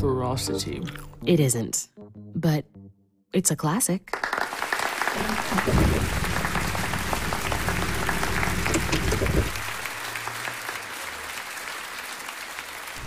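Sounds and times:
audience applauding: 4.1 - 13.0.

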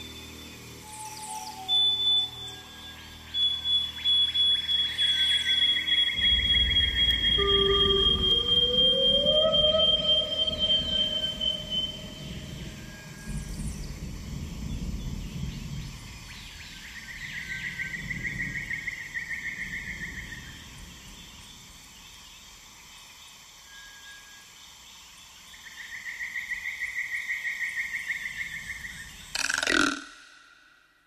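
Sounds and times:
trilling animal calls: 4.9 - 12.8, 29.4 - 30.6.

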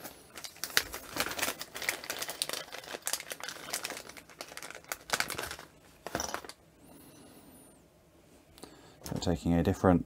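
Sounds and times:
plastic packet crinkling: 0.0 - 6.5.

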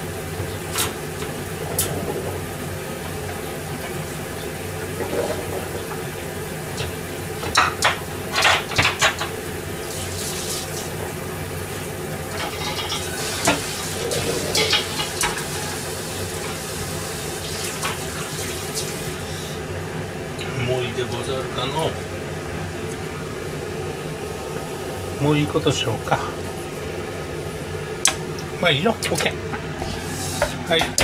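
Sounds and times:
background hum: 0.0 - 31.0.

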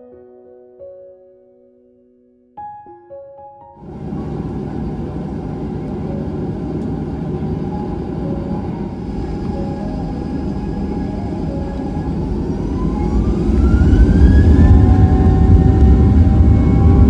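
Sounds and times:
jet engines spooling up: 3.8 - 17.0
rising engine whine: 3.8 - 17.0.

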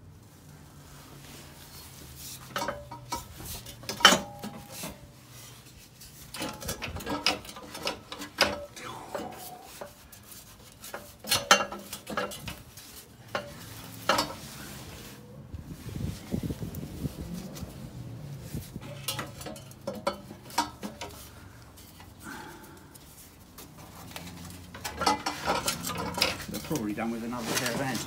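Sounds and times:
metal knocks and clanks: 18.8 - 21.3, 24.3 - 28.0.

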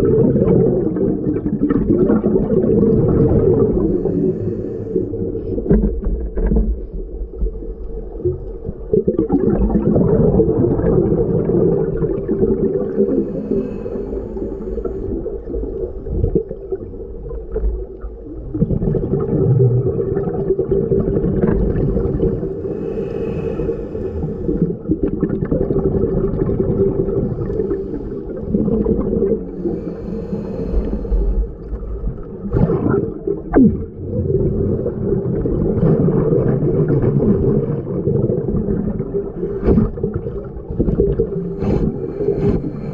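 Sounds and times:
gurgling bubbles: 0.0 - 42.9
regulator breathing underwater: 2.7 - 5.6, 12.5 - 15.6, 21.8 - 25.1, 26.9 - 32.9, 41.2 - 42.9.

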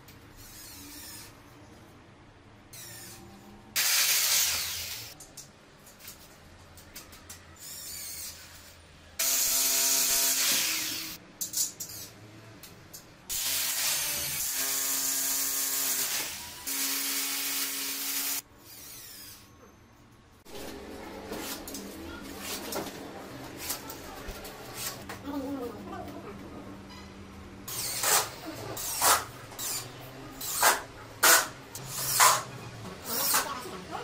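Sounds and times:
power drills drilling into ceiling: 3.8 - 5.2, 9.2 - 11.2, 13.3 - 19.4, 27.7 - 29.8.

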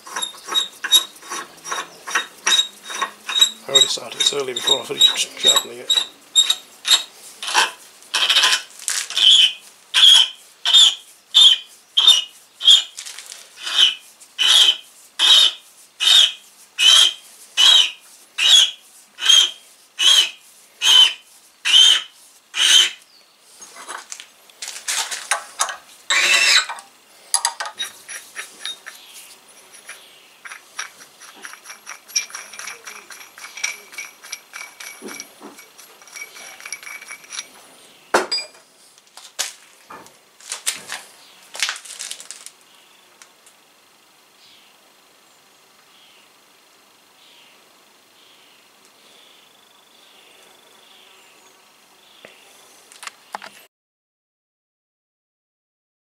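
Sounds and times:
rustling: 0.0 - 38.0, 38.6 - 43.6
tap squeaking in brass nut: 0.1 - 12.8, 13.6 - 15.5, 25.6 - 26.8, 29.8 - 37.5.

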